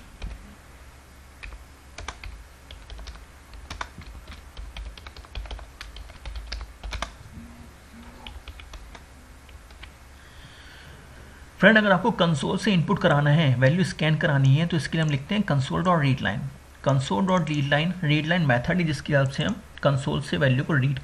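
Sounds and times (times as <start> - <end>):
faint low hum: 0.0 - 21.0
typing on computer keyboard: 1.4 - 7.2, 8.2 - 10.0.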